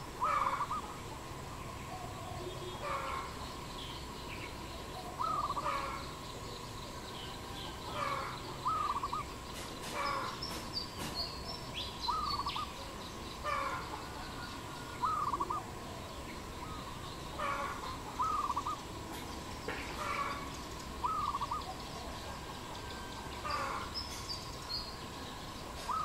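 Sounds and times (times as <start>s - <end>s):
dove cooing: 0.0s - 1.0s, 4.8s - 6.1s, 7.9s - 10.6s, 12.1s - 12.8s, 13.4s - 19.2s, 19.8s - 24.0s, 25.8s - 26.0s.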